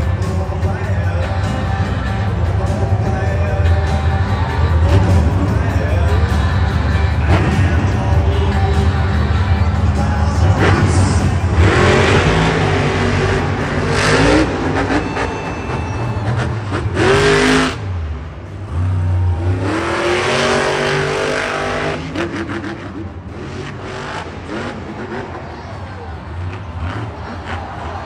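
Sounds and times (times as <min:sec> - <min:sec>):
truck engines revving: 0:00.0 - 0:28.0.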